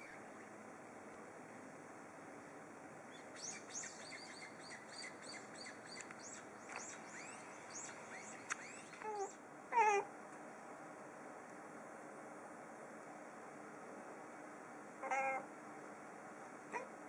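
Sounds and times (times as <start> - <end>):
high bird chirps: 3.1 - 9.4.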